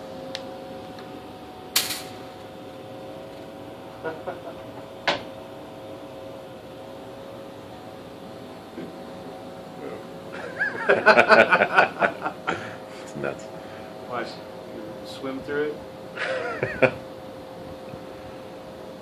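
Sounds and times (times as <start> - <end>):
machine hum: 0.0 - 19.0
sharp click: 1.7 - 2.2.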